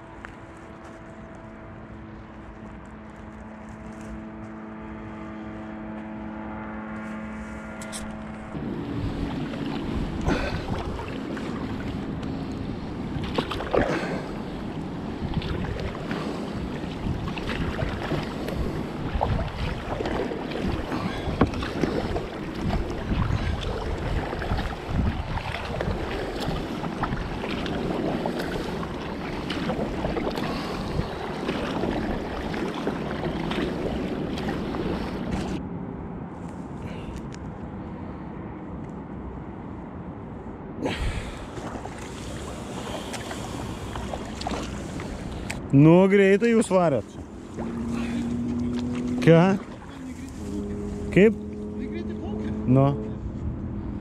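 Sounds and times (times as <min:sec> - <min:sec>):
water splashing around kayak: 0:00.0 - 0:35.6, 0:40.8 - 0:54.0
wind buffeting microphone: 0:07.9 - 0:35.6.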